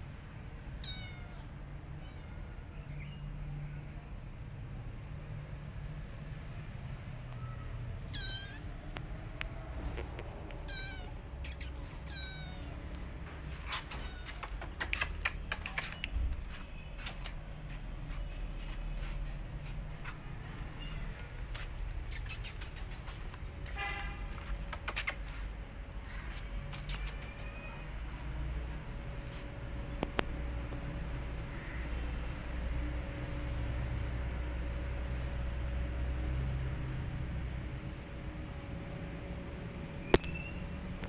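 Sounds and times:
kitten mewing: 0:00.8 - 0:02.4, 0:07.4 - 0:08.7, 0:10.6 - 0:12.8, 0:13.7 - 0:15.8, 0:26.9 - 0:27.7
sharp clicks and taps: 0:14.2 - 0:16.2.

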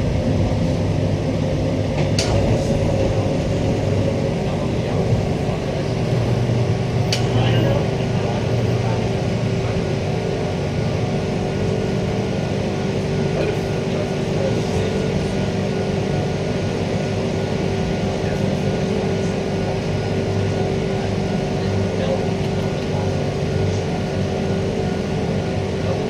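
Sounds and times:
low hum: 0:00.0 - 0:10.6
wheels rumbling on rail: 0:00.0 - 0:26.0.

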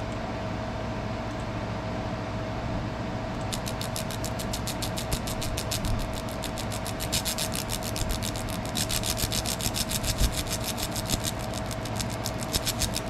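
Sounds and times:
laser engraver buzzing: 0:03.4 - 0:13.0.

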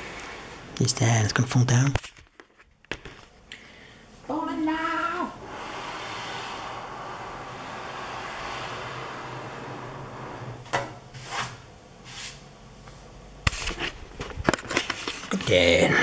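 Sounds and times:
case rubbing on wooden table: 0:05.5 - 0:10.7.

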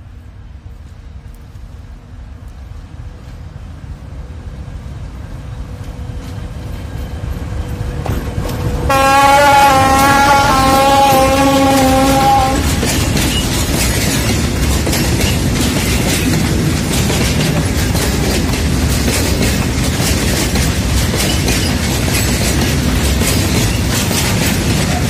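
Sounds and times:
locomotive engine rumble: 0:00.0 - 0:25.0
locomotive horn blast: 0:08.9 - 0:12.8.

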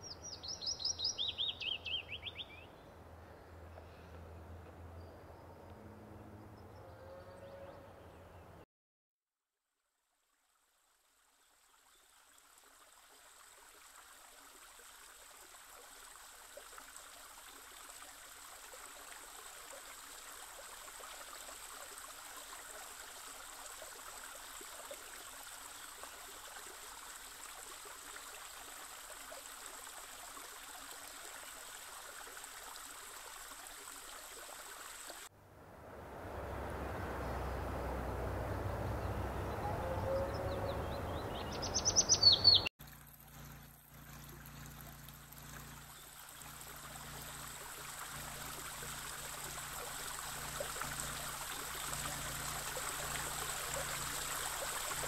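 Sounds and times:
creek running over rocks: 0:00.0 - 0:02.7, 0:10.2 - 0:35.3, 0:41.1 - 0:55.0.

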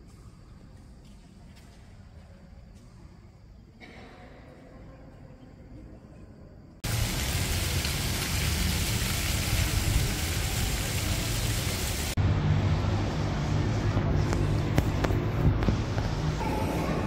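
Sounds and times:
street ambience: 0:00.0 - 0:17.0
fountain water splashing: 0:06.8 - 0:12.2
low city rumble: 0:06.8 - 0:17.0.

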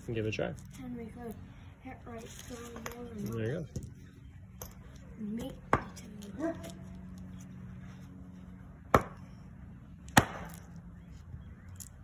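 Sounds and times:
hatchet chopping log: 0:08.9 - 0:09.2, 0:10.1 - 0:10.6.

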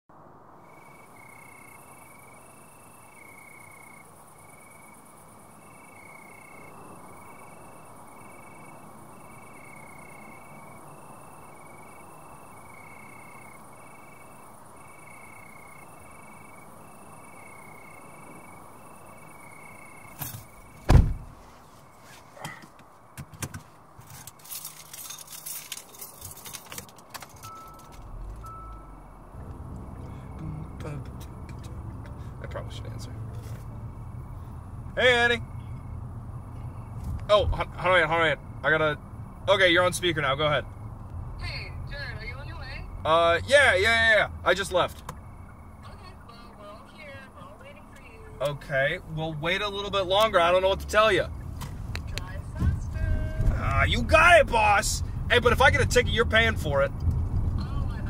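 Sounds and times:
insects chirping: 0:00.2 - 0:58.0
car door closing: 0:20.1 - 0:21.4
clicks and rattles in car: 0:22.4 - 0:28.7
keys jangling: 0:24.0 - 0:28.4.

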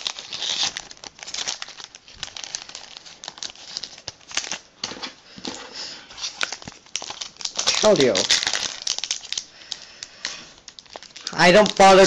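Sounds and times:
foil wrappers crinkling: 0:00.0 - 0:12.0.

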